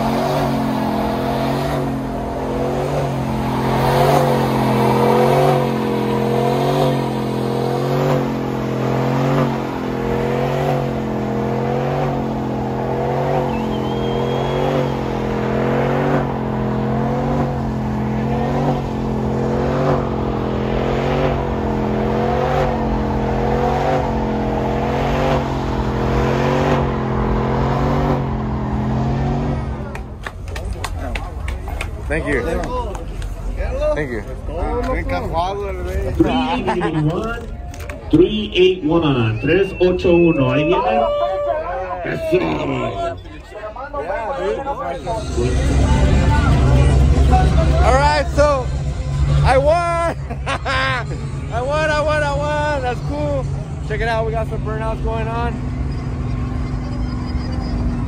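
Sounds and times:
engine revving high: 0.0s - 30.1s, 44.8s - 49.8s.

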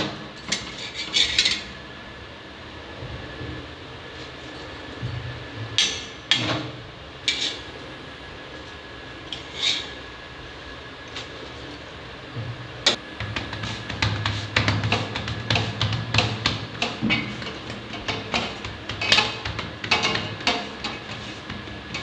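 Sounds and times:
metal spatula scraping griddle: 0.5s - 1.6s, 9.4s - 10.0s, 13.4s - 22.0s.

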